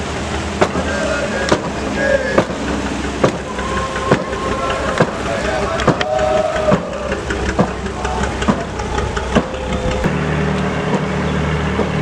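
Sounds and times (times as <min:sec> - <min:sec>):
low motor hum: 0:00.0 - 0:12.0
voices: 0:00.6 - 0:10.1
sharp wooden knocks: 0:03.2 - 0:03.4, 0:04.0 - 0:10.1.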